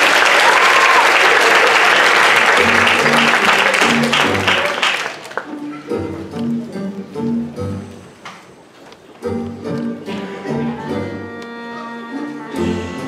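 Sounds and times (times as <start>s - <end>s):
audience applauding: 0.0s - 5.6s
music with low notes: 5.6s - 8.2s, 9.2s - 13.0s.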